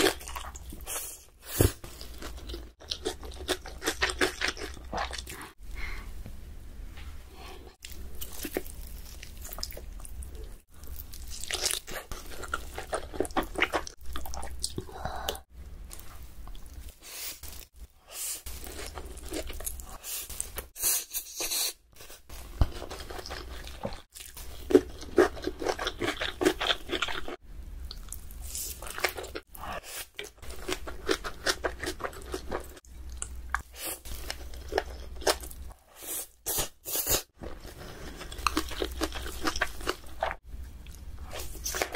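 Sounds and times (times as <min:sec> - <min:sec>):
chewing noodles: 0:37.4 - 0:41.9.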